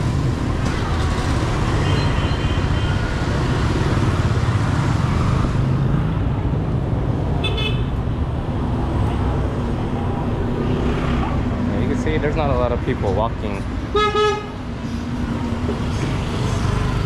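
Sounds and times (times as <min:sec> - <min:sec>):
motorbike engines passing: 0:00.0 - 0:13.8, 0:14.6 - 0:17.0.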